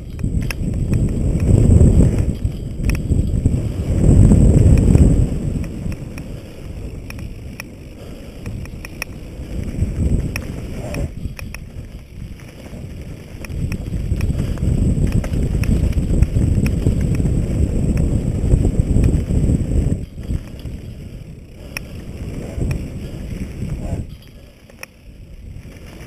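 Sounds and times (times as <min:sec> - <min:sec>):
bike clicks and rattles: 0:00.0 - 0:26.0
tyres running over dirt: 0:00.0 - 0:26.0
wind buffeting microphone: 0:00.0 - 0:26.0.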